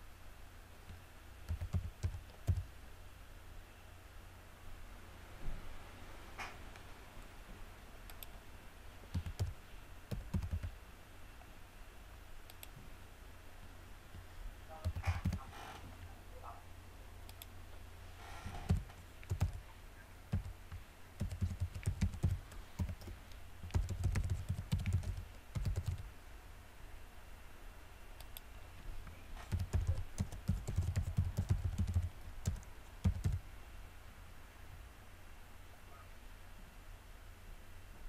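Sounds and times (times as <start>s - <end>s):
computer keyboard typing: 1.5s - 2.7s, 9.1s - 10.8s, 14.8s - 15.5s, 18.7s - 19.6s, 20.3s - 26.1s, 29.4s - 33.4s.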